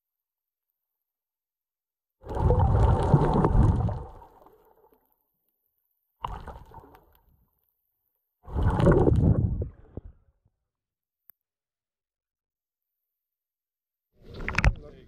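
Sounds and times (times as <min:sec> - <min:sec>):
muffled underwater water sloshing: 0:02.2 - 0:04.9, 0:08.4 - 0:10.3.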